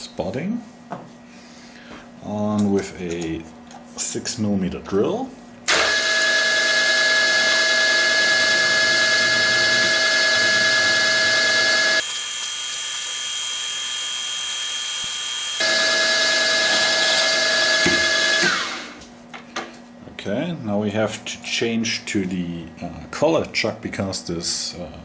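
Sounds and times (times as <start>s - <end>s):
drill-milling machine whining: 5.7s - 19.0s.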